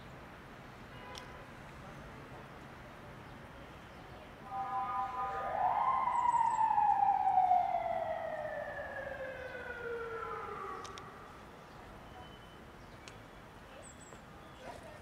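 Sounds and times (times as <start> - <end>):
siren wailing: 4.4 - 11.6.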